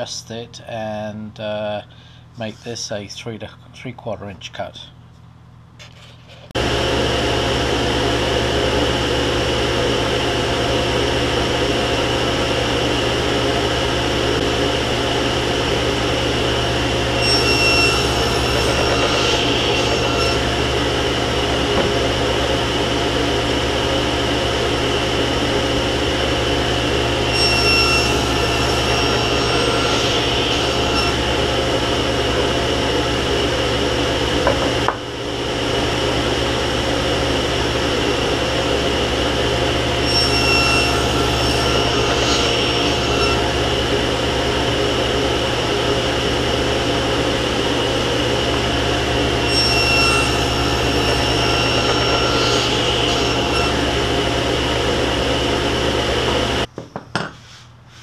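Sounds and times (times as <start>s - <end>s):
table saw running: 6.6s - 56.7s
saw blade cutting wood: 16.4s - 22.3s, 26.6s - 33.4s, 40.0s - 46.2s, 47.0s - 56.5s.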